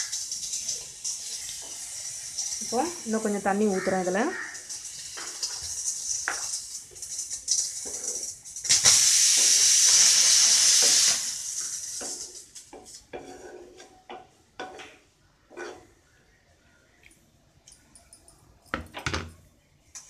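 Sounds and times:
pressure cooker steam whistle: 8.7 - 12.0
spatula scraping steel pan: 12.8 - 14.0, 15.5 - 16.0.

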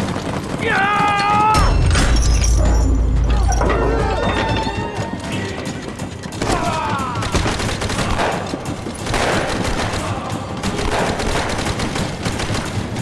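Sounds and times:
rifle and machine-gun fire: 0.0 - 2.4, 6.3 - 13.0.

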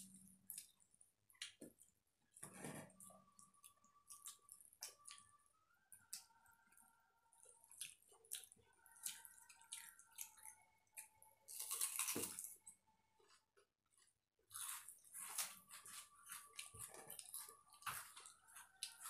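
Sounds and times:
wet eating sounds: 0.0 - 12.6, 14.5 - 19.0.

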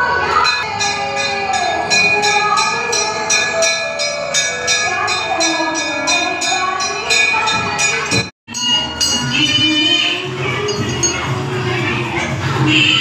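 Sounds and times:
crowd voices: 0.0 - 13.0
temple bells ringing: 0.3 - 11.6.

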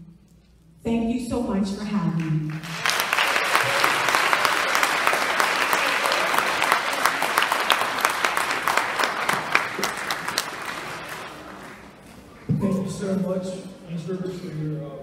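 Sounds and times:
audience applauding: 2.5 - 12.5.

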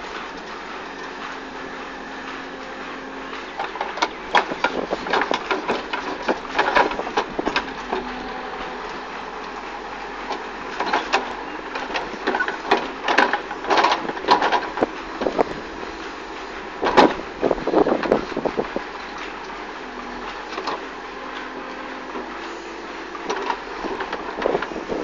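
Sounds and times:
diesel engine running: 0.0 - 25.0
digger bucket clattering in earth: 3.3 - 9.6, 10.3 - 15.8, 16.8 - 19.3.

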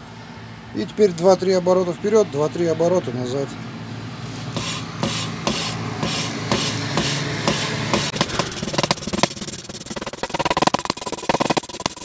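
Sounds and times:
valve grinding on seat: 4.3 - 12.0.

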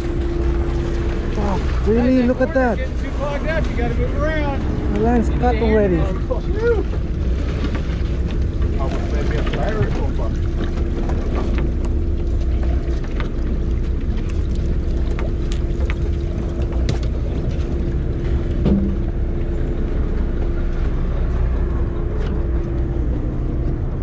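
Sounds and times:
boat engine rumbling: 0.0 - 24.0.

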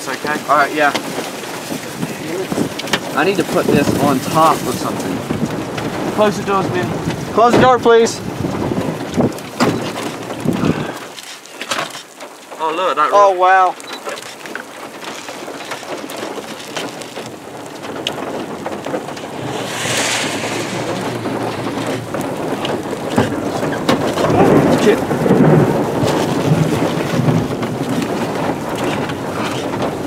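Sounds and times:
rain falling on a vehicle: 0.0 - 19.7, 20.4 - 30.0
low rumble of thunder: 1.9 - 11.0, 17.7 - 30.0
short rush of hiss: 19.3 - 22.1.

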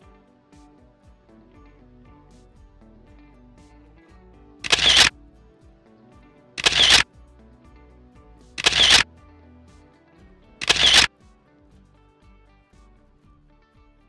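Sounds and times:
background music: 0.0 - 14.0
camera shutter sound effect: 4.6 - 5.1, 6.6 - 7.1, 8.6 - 9.1, 10.6 - 11.1.

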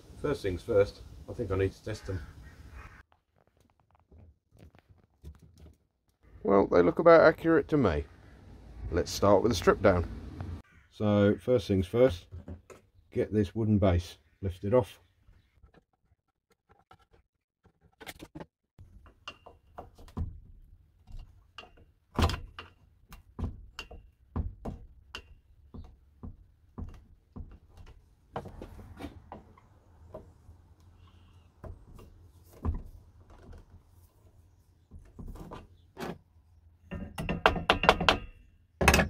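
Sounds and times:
tools knocking on metal and wood: 18.9 - 28.5, 36.8 - 39.0.

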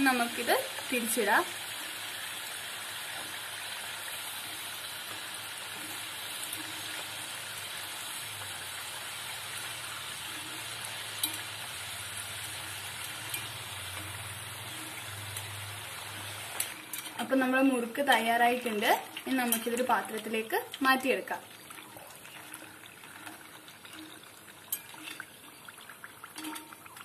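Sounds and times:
oil sizzling and bubbling: 0.0 - 27.0
stick clicking in pan: 11.2 - 11.5.

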